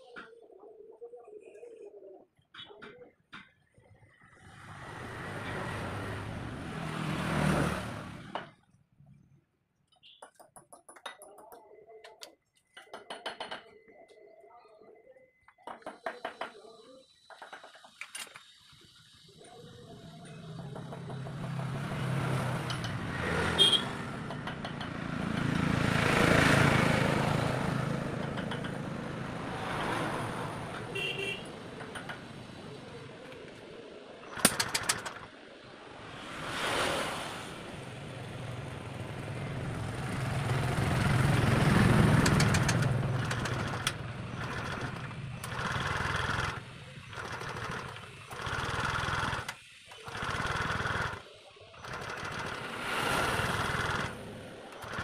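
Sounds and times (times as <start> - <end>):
motor vehicles passing by: 4.1 - 9.2, 19.0 - 55.0.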